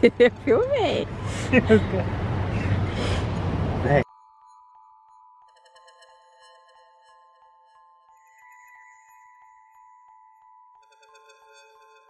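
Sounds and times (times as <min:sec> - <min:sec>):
bell-like mallet tones: 0:04.0 - 0:12.0.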